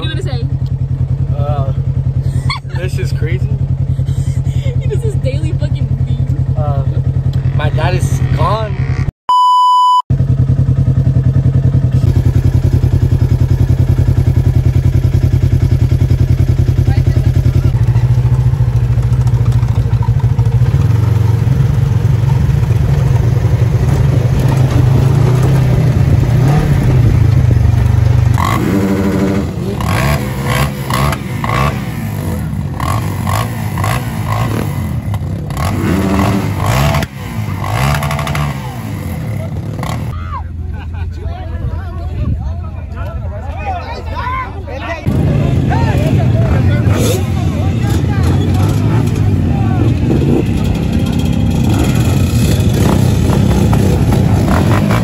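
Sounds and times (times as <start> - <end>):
off-road vehicle engine revving: 0.0 - 9.1, 10.2 - 40.8, 45.0 - 55.0
test-tone beep: 9.3 - 10.1.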